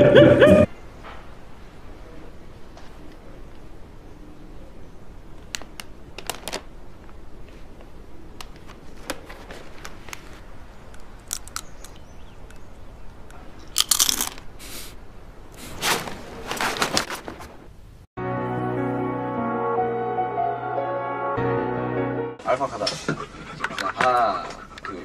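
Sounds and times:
snack bag crinkling: 0:05.5 - 0:06.7, 0:11.0 - 0:12.0, 0:13.8 - 0:14.9
crunchy snacks being eaten: 0:11.0 - 0:12.0, 0:13.7 - 0:15.0.

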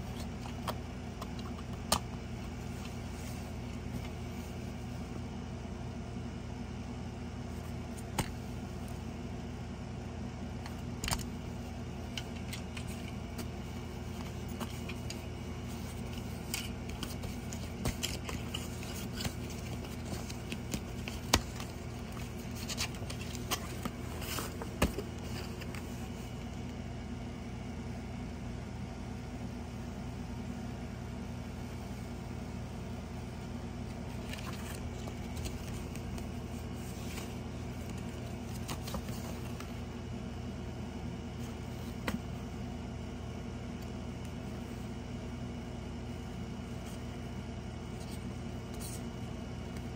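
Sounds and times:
steady low hum: 0:00.0 - 0:49.9
paper rustling: 0:12.1 - 0:26.5, 0:34.0 - 0:39.8.

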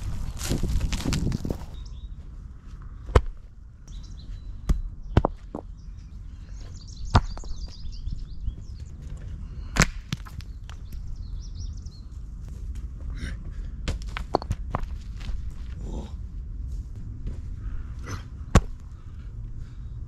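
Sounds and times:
rocks thudding onto soil: 0:00.0 - 0:01.8, 0:04.6 - 0:05.7, 0:07.1 - 0:07.7, 0:09.7 - 0:10.8, 0:13.8 - 0:15.7, 0:18.5 - 0:18.8
birds chirping: 0:01.6 - 0:03.1, 0:03.7 - 0:12.4.

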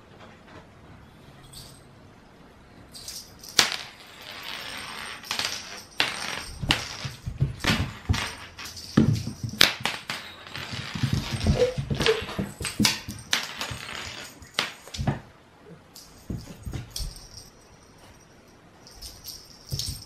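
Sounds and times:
cat paws scrabbling on wooden floor: 0:06.4 - 0:15.3, 0:16.1 - 0:18.2.

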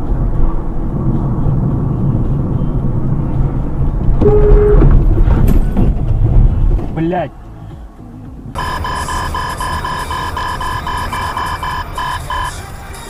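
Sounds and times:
car engine and road noise: 0:00.0 - 0:13.0
steady tone: 0:04.2 - 0:05.0, 0:08.5 - 0:13.0.

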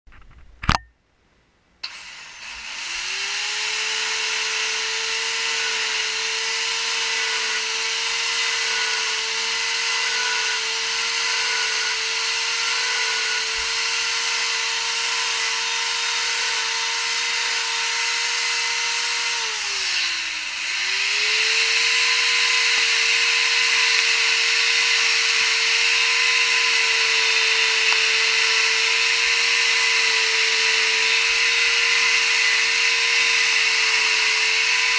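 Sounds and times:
power tool high whine: 0:01.8 - 0:34.9.

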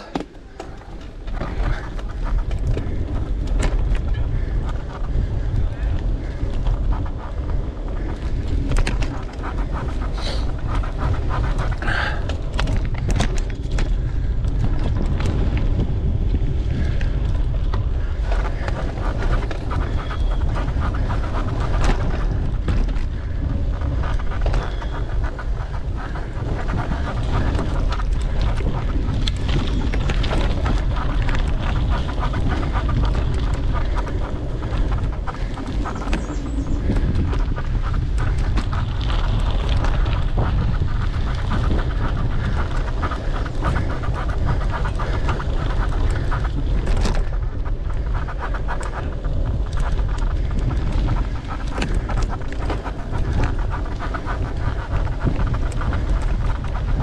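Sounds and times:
bike clicking and rattling: 0:00.0 - 0:57.0
rider breathing hard: 0:00.0 - 0:57.0
wind buffeting microphone: 0:00.0 - 0:57.0.

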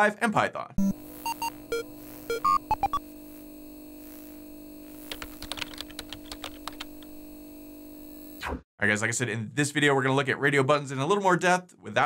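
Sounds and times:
short electronic beeps: 0:00.8 - 0:03.0
steady low hum: 0:00.8 - 0:08.4
keyboard typing clicks: 0:05.1 - 0:07.1.

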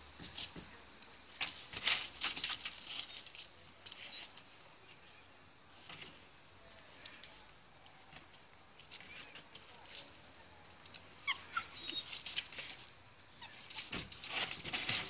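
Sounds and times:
puppy paws scratching wood chips: 0:01.4 - 0:04.4.

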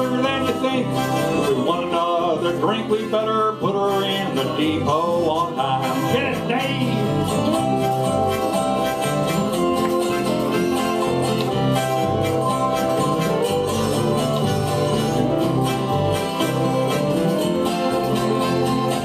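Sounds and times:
fiddle: 0:00.0 - 0:19.0
strummed acoustic guitars: 0:00.0 - 0:19.0
held-note lead instrument: 0:03.8 - 0:19.0.

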